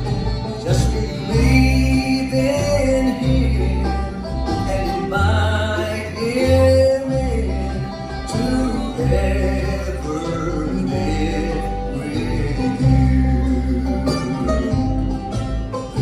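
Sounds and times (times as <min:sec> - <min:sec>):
acoustic guitar: 0:00.0 - 0:16.0
banjo: 0:00.0 - 0:16.0
fiddle: 0:00.0 - 0:16.0
upright bass: 0:00.0 - 0:16.0.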